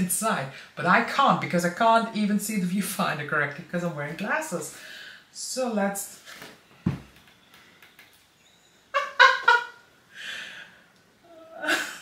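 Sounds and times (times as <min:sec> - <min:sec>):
thump: 0:06.8 - 0:07.1.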